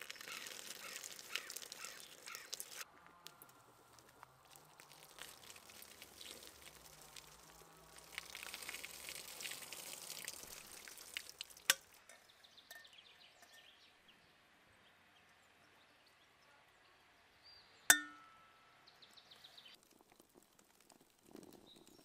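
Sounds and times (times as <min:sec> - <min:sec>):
water splashing on steel pot: 0:00.0 - 0:02.8, 0:04.0 - 0:12.2, 0:17.9 - 0:18.4
foam crackling and fizzing: 0:00.0 - 0:12.0, 0:19.8 - 0:22.0.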